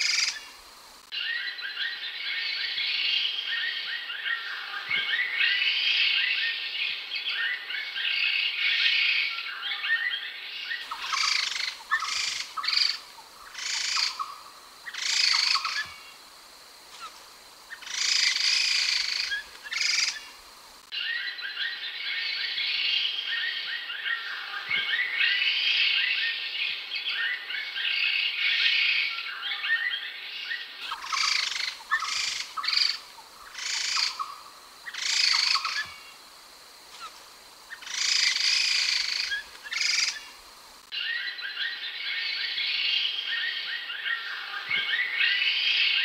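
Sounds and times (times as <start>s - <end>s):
laughingthrush chattering song: 30.8s - 35.9s.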